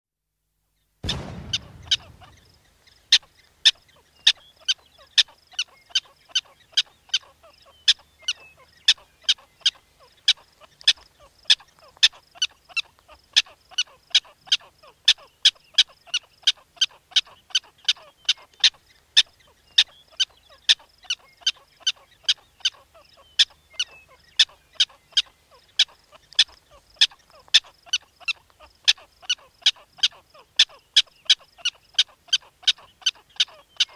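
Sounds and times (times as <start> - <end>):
cartoon boom sound effect: 1.0 - 2.5.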